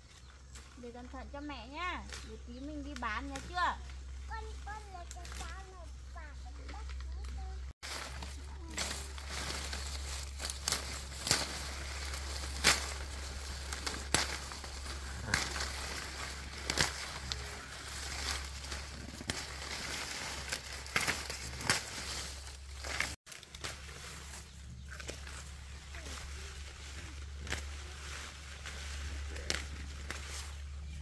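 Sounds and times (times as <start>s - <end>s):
leaves and stems rustling: 0.0s - 31.0s
stems snapping: 2.0s - 4.0s, 6.6s - 30.7s.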